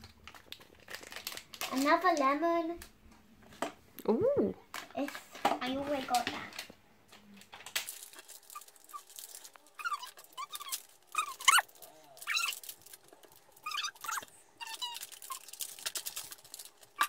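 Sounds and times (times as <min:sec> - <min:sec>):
foil packet crinkling and tearing: 0:00.0 - 0:02.4, 0:07.4 - 0:17.0.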